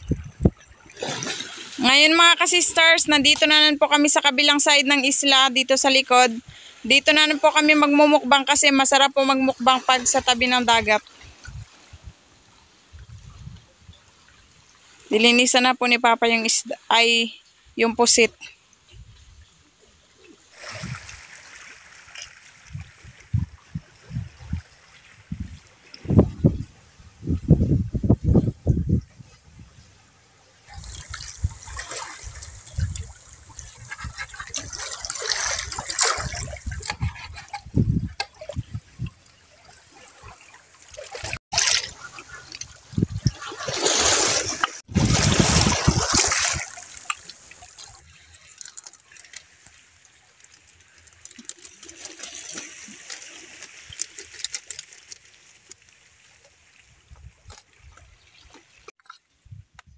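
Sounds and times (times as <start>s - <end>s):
seawater splashing on rocks: 30.7s - 36.9s, 39.6s - 56.4s.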